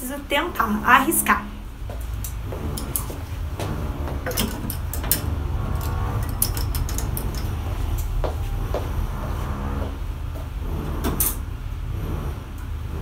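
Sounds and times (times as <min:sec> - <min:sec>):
steady low rumble: 0:00.0 - 0:13.0
clothes hangers clicking on rail: 0:04.2 - 0:08.2.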